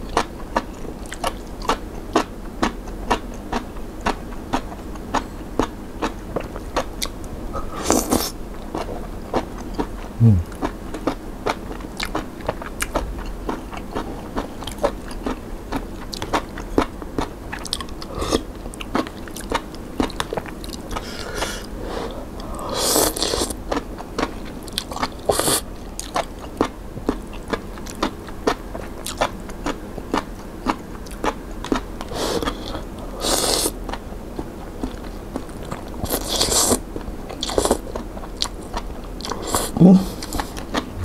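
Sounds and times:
person chewing: 0.1s - 41.0s
person slurping noodles: 10.2s - 10.5s, 18.1s - 18.5s, 21.0s - 23.5s, 32.1s - 33.7s, 39.3s - 41.0s.

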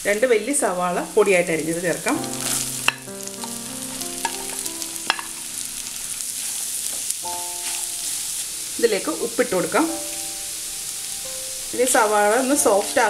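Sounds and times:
onions sizzling in hot oil: 0.0s - 13.0s
soft background music: 0.5s - 13.0s
utensil tapping on pan: 2.5s - 5.4s.

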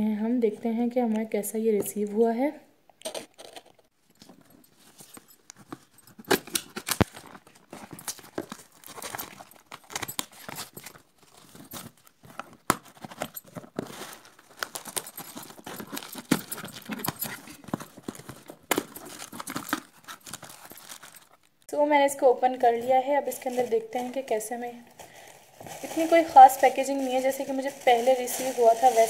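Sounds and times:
tape ripping: 6.2s - 21.5s
knife slitting packing tape: 6.3s - 21.3s.

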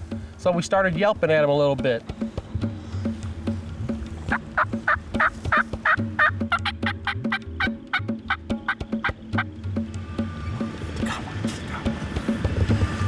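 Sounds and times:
turkey call yelping: 4.3s - 9.5s.

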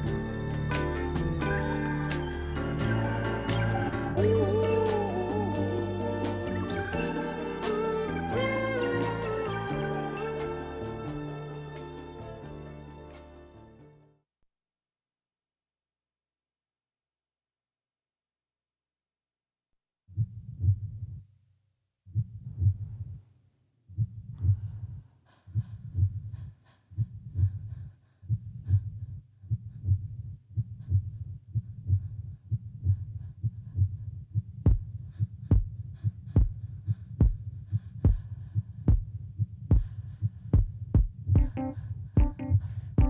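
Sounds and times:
heartbeat-like throbbing pulse: 22.1s - 23.2s, 24.0s - 43.0s.

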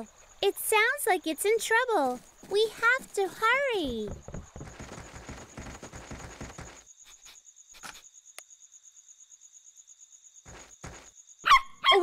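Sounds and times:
crickets chirping: 0.0s - 12.0s
running footsteps on wooden bridge: 2.4s - 6.8s, 10.5s - 11.1s.

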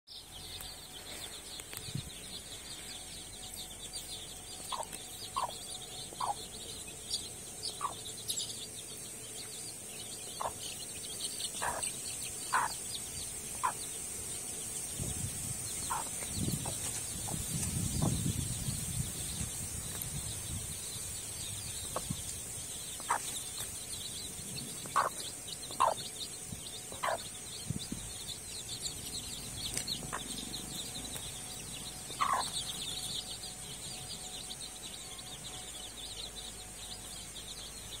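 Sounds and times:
chicks peeping: 0.1s - 38.0s
chicken calling: 12.5s - 12.8s, 32.2s - 32.6s.

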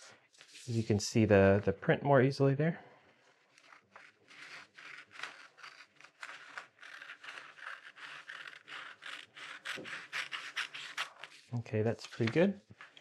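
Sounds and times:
scissors snipping paper: 3.5s - 11.4s.

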